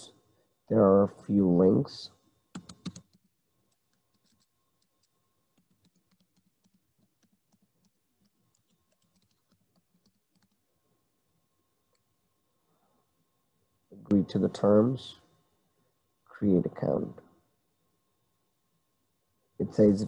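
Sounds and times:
computer keyboard typing: 2.5s - 10.6s.

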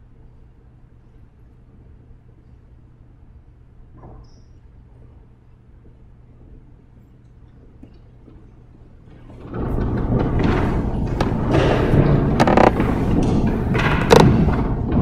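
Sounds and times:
microphone handling rustling: 10.1s - 14.7s.

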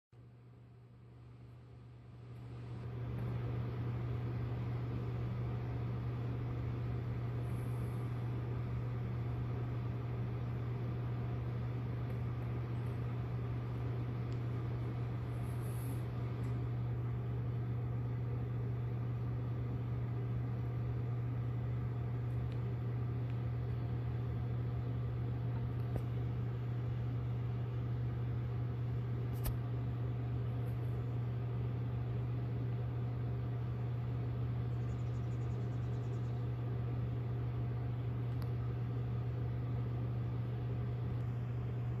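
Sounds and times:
low machine hum: 0.2s - 42.0s
faint click: 38.3s - 38.6s.

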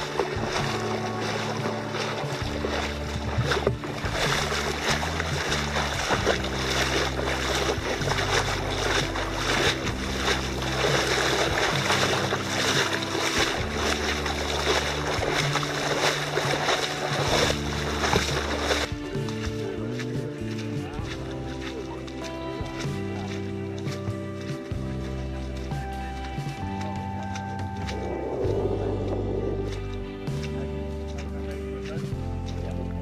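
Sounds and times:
music with low chords: 0.0s - 33.0s
wading through water splashing: 0.0s - 33.0s.

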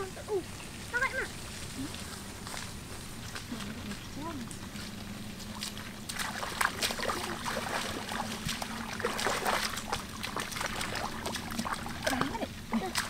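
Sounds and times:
wading through stream water: 0.0s - 13.0s.

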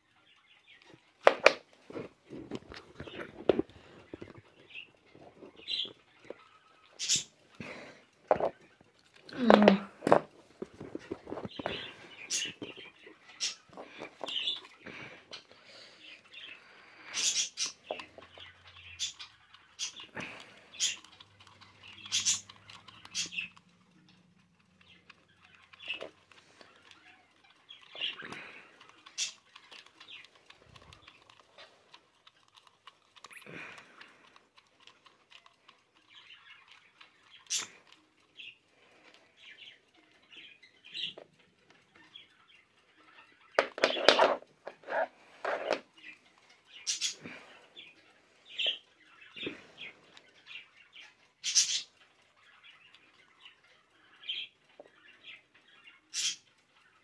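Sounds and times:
handling noise: 9.3s - 12.9s, 43.6s - 45.9s.

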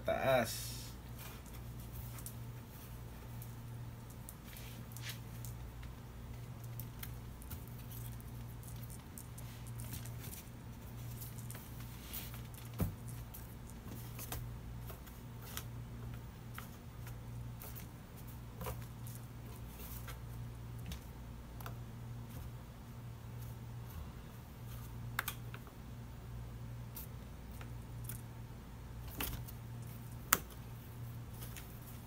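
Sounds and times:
low room hum: 0.0s - 32.0s
small rustles: 1.0s - 21.1s.

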